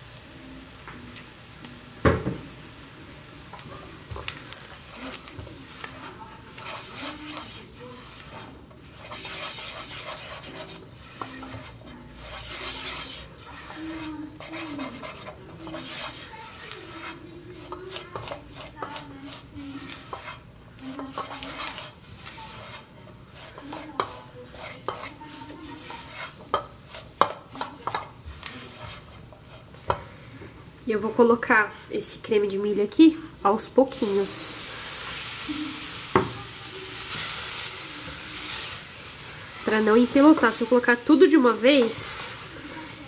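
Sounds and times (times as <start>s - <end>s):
light sizzling: 0.0s - 43.0s
spoon stirring and scraping in pan: 0.7s - 43.0s
loud clank against pan: 2.0s - 2.5s
utensil knocking: 2.0s - 2.5s.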